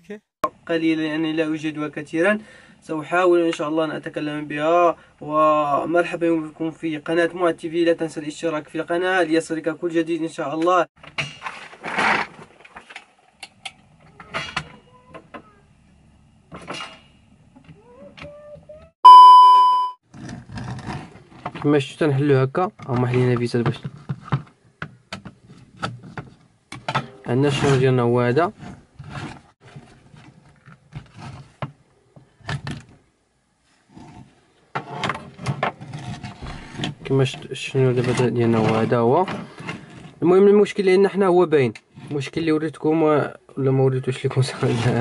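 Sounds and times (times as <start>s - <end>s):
light plastic scraping: 33.9s - 40.2s.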